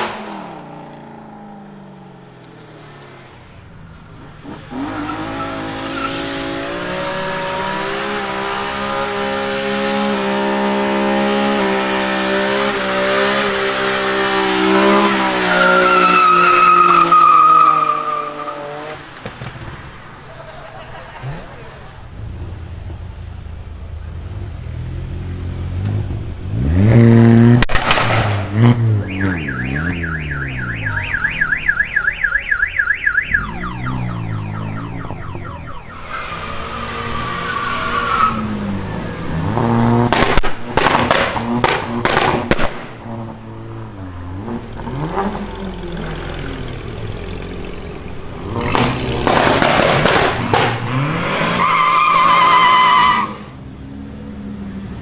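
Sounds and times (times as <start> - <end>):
cars revving and pulling away: 0.0 - 55.0
loud exhaust bangs: 27.5 - 32.0, 39.5 - 43.3, 48.6 - 51.3
warbling siren-like tone: 29.0 - 36.6.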